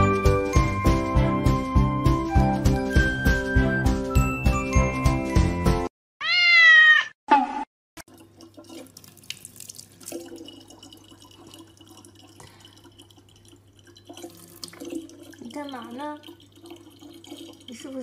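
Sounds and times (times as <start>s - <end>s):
tinkling music: 0.0s - 5.9s
cat meow: 6.2s - 7.2s
tap water trickling into bottle: 8.0s - 18.0s.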